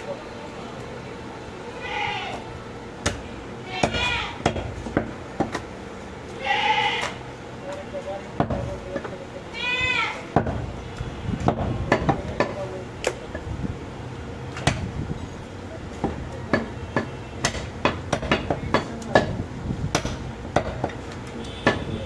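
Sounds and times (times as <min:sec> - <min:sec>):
cleaver chopping meat on wood: 0:03.8 - 0:05.6, 0:16.0 - 0:21.0.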